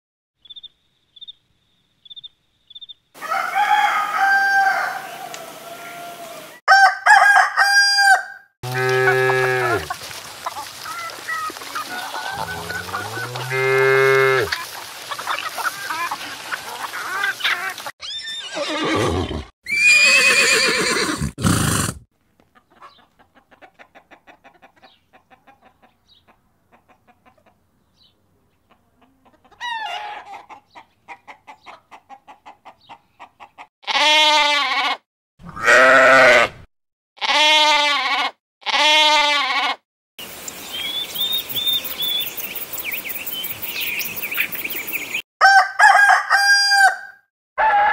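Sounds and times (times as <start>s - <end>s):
farm animal calls: 8.6s - 21.2s, 28.7s - 36.6s, 37.2s - 39.8s
high choppy animal call: 8.7s - 22.0s.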